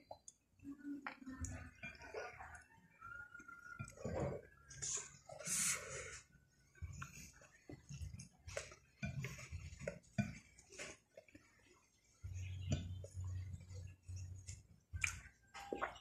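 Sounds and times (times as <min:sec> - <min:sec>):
fingers tapping glass plate: 0:07.4 - 0:10.7, 0:12.4 - 0:14.3.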